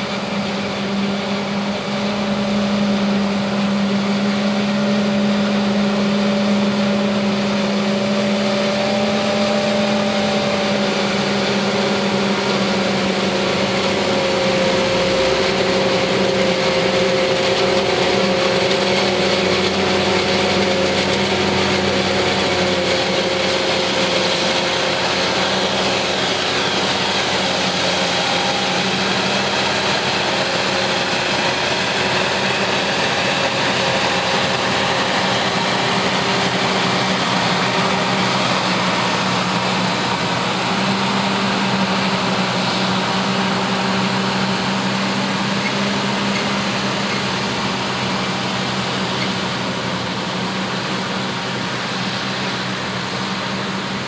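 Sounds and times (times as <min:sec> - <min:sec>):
tractor engine running: 0:00.0 - 0:54.0
forage harvester chopping maize: 0:08.1 - 0:49.8.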